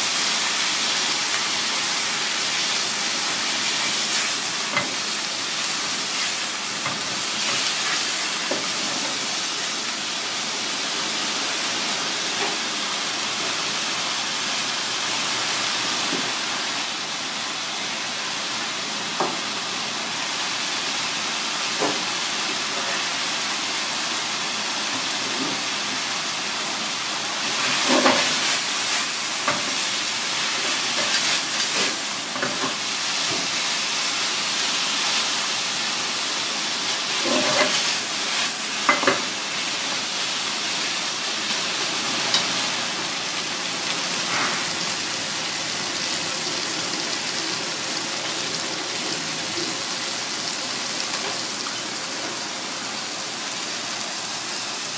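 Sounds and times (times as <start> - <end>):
noodles sizzling in a frying pan: 0.0 - 54.9
utensils clinking against pan: 37.1 - 38.0.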